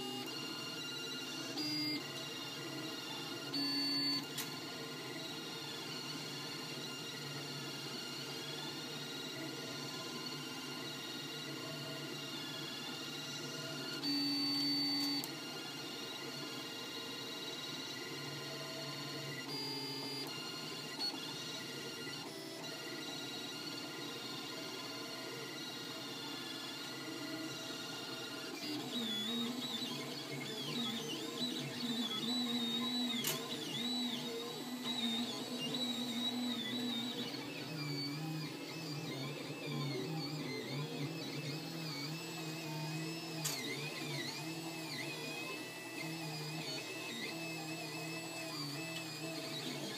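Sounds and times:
stepper motors whining: 26.8 - 49.9.

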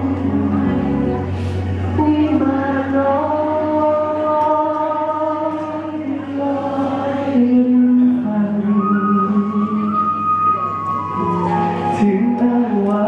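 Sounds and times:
musical accompaniment: 8.0 - 13.0.

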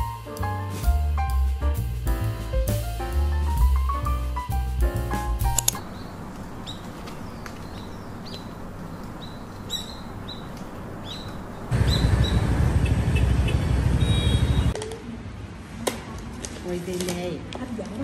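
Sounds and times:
faint city hum: 0.0 - 18.0
car and motorbike engines: 5.5 - 16.4
small birds chirping: 5.6 - 14.8.

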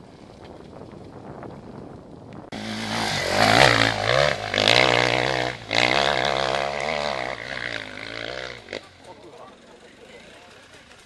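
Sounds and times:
dirt bike engine revving: 2.5 - 11.0.

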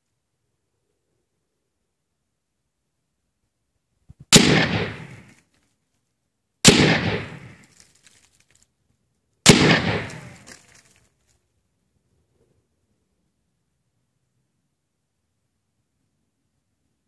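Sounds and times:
rifle shots with echo: 4.3 - 5.4, 6.6 - 7.6, 9.4 - 10.6.

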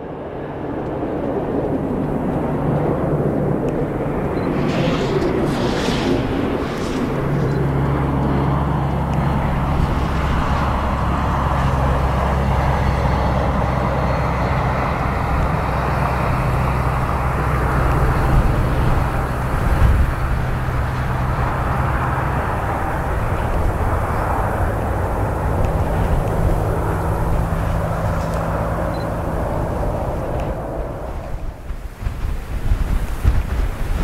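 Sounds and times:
jet engine roar: 0.0 - 34.0
wind rumbling on microphone: 0.0 - 34.0.

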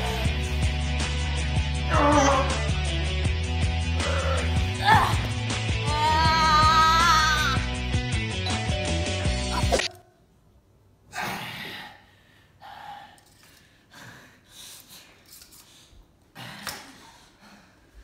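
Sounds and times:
music: 0.0 - 9.9
strained gasps and breaths: 11.2 - 18.0.

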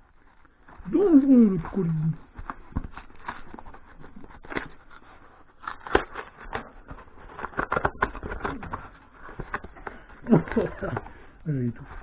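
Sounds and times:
cardboard box being torn open: 1.6 - 11.0.

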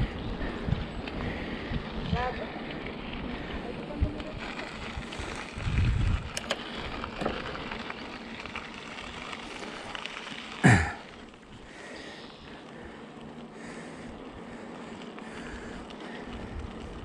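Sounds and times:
bicycle tyres crackling on trail: 0.0 - 17.0
small clicks: 6.2 - 8.7.

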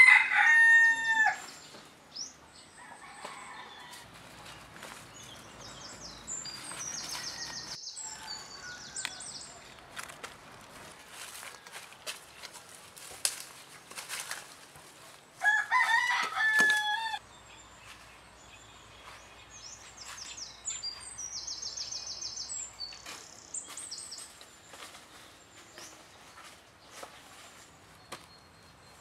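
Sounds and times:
rooster crowing: 0.0 - 1.4, 2.8 - 4.1, 7.0 - 9.8, 15.4 - 17.2
rustles among leaves: 3.7 - 17.2, 21.7 - 28.4
small bird chirping trill: 5.1 - 9.5.

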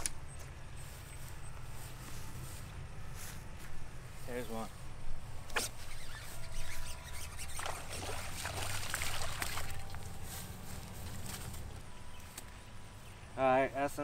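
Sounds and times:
fish splashing in water: 7.4 - 10.0
water dripping: 7.6 - 10.0.

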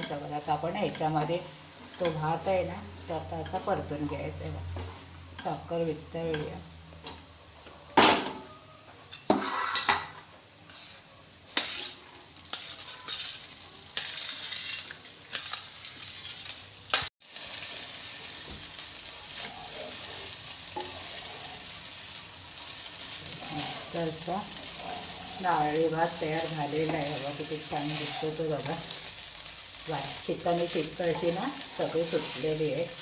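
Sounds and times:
frying sizzle: 0.0 - 33.0
spatula scraping a pan: 9.1 - 10.1, 10.7 - 11.0, 11.6 - 33.0.

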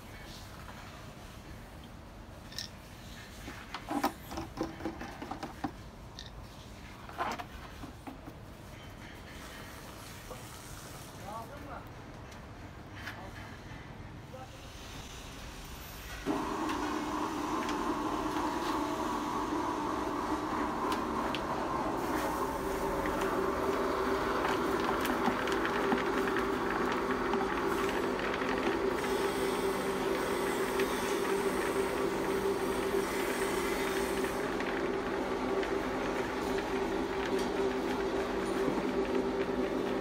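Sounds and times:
machine hum and whine: 16.2 - 40.0.

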